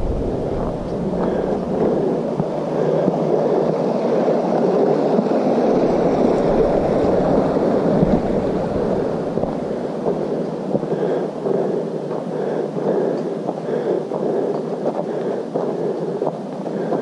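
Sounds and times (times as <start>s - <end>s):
creek water running over rocks: 3.8s - 10.1s.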